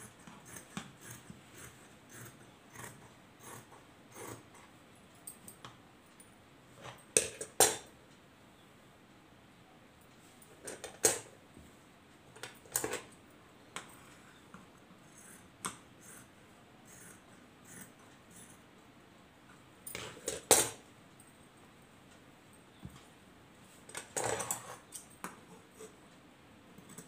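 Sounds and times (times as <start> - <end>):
scissors snipping cloth: 0.0 - 4.4.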